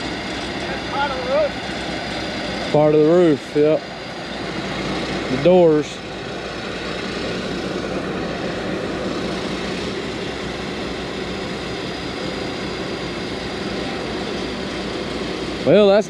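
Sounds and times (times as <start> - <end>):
engine running drone: 0.0 - 16.0.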